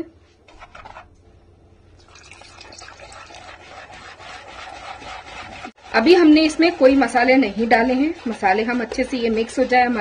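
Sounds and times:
whisk beating in plastic bowl: 2.2s - 10.0s.

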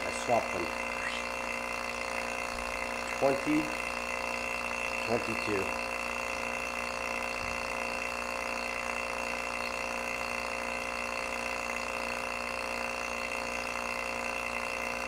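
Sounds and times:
vacuum pump motor hum: 0.0s - 15.0s.

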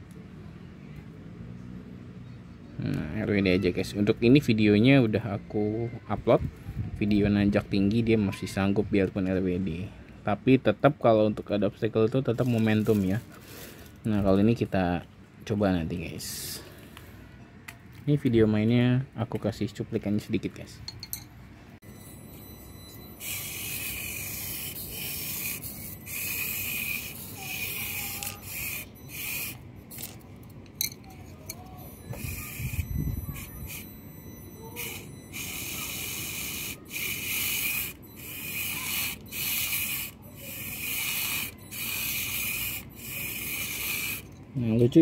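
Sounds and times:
toy car electric motor whining: 22.4s - 30.2s, 31.2s - 44.4s.

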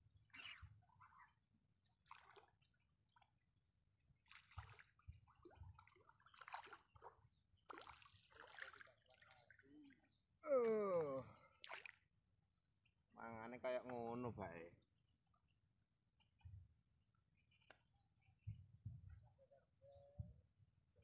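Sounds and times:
fish splashing in water: 5.8s - 9.2s, 11.6s - 12.0s.

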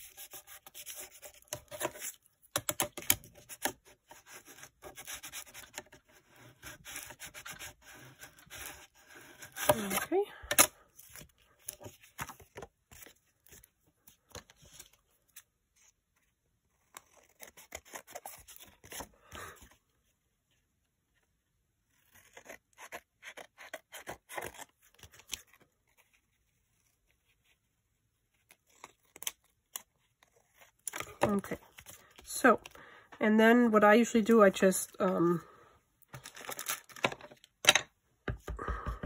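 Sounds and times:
paper rustling: 36.1s - 37.8s.

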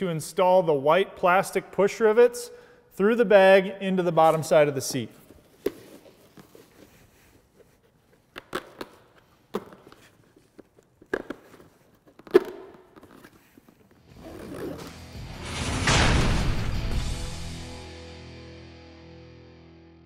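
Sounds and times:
fabric bag rustling: 5.2s - 8.3s.

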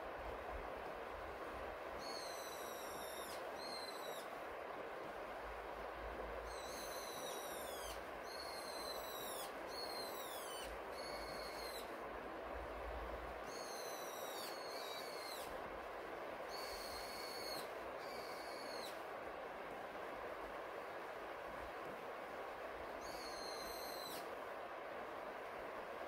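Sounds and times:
rain: 0.0s - 6.7s, 7.3s - 13.6s
jay whistled calls: 2.0s - 4.4s, 6.4s - 12.0s, 13.4s - 15.6s, 16.5s - 19.0s, 23.0s - 24.4s.

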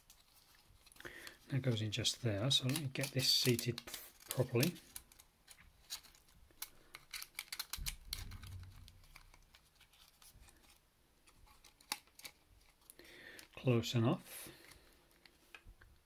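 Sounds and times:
small plastic and metal clicks: 2.6s - 9.7s.

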